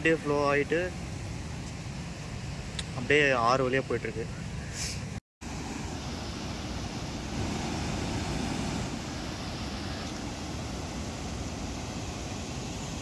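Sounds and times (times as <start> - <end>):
water rushing and churning: 5.4 - 13.0.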